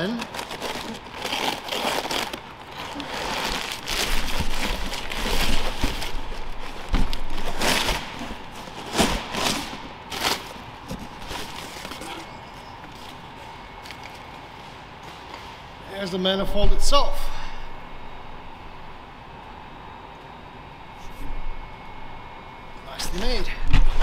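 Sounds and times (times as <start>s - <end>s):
packing material rustling: 0.0s - 13.2s.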